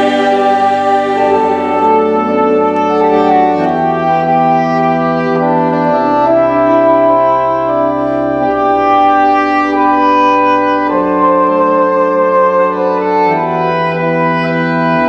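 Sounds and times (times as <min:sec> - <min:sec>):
choir singing held chords: 0:00.0 - 0:04.5.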